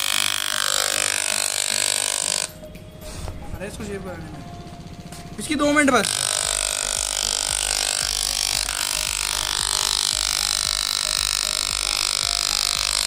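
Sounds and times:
electric hair clipper buzzing: 0.0 - 2.7, 5.9 - 13.0.

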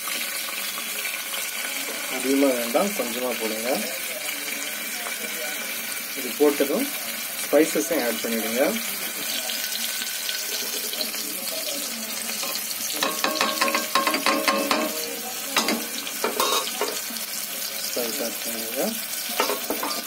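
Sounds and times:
onion sizzling in hot oil: 0.0 - 20.0
metallic clinks against pot: 12.4 - 15.0.

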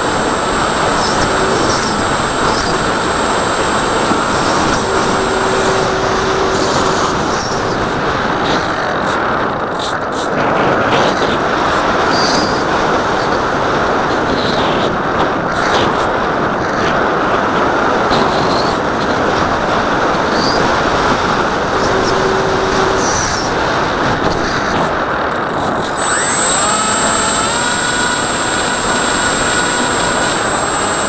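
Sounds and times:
steady tone: 0.0 - 7.9, 21.0 - 23.6, 26.0 - 31.0
electric motor and propeller: 0.0 - 8.7, 19.7 - 24.4, 25.8 - 31.0.

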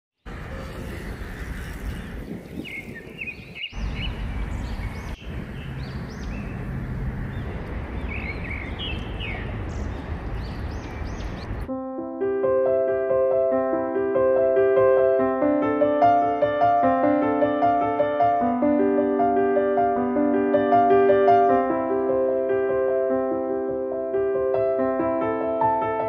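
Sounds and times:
small birds chirping: 0.2 - 11.7
gentle piano music: 7.3 - 26.0.

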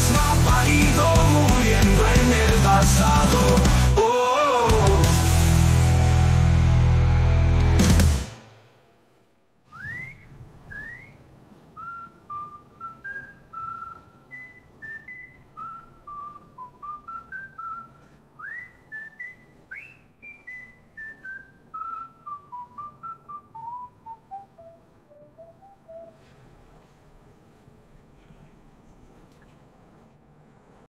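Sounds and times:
person whistling a slow tune: 9.7 - 11.2, 11.8 - 26.2.

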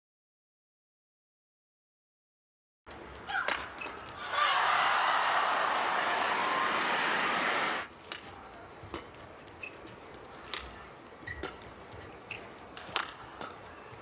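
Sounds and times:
racket striking shuttlecock: 2.9 - 4.2, 8.9 - 9.2, 10.5 - 11.8, 12.8 - 13.8
loud crowd noise: 4.0 - 7.9
shoes squeaking on court: 8.8 - 14.0.

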